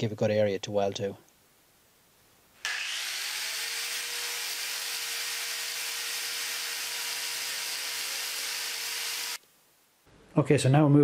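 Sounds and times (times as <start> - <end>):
angle grinder grinding metal: 2.6 - 9.4.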